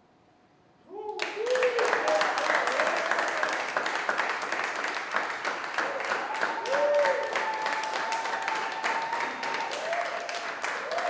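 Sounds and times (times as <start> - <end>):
people clapping: 1.0 - 11.0.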